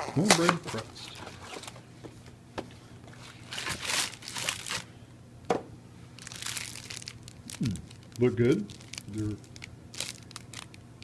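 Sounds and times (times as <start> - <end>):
plastic wrappers crinkling: 3.3 - 4.9, 6.2 - 10.8.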